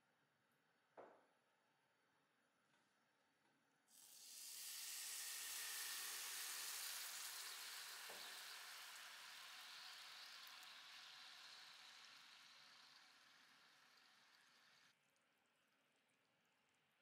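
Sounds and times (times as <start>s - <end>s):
water sizzling in hot pan: 3.9s - 15.0s
sugar syrup bubbling: 4.0s - 15.1s.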